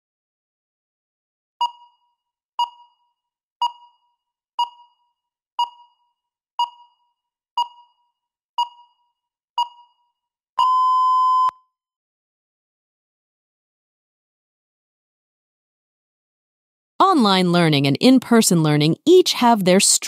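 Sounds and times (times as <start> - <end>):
electronic timer beeps: 1.6 - 11.6
long steady timer beep: 1.6 - 11.7.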